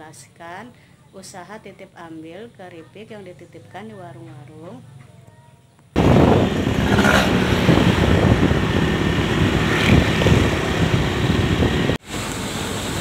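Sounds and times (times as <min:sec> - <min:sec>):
road vehicle rumble: 0:05.9 - 0:13.0
wind rushing over microphone: 0:06.0 - 0:12.0.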